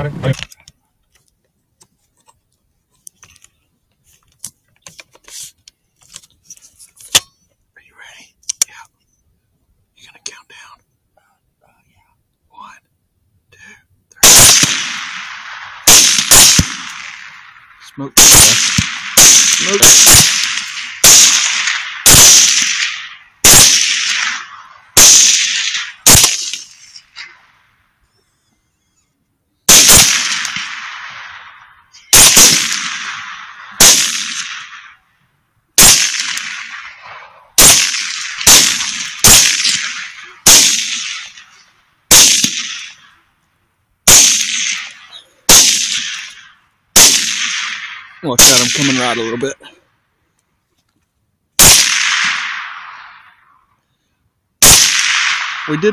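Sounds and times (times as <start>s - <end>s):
gunshots: 14.2s - 27.6s, 29.7s - 35.0s, 35.8s - 43.2s, 44.0s - 49.7s, 51.6s - 53.6s, 54.6s - 55.9s.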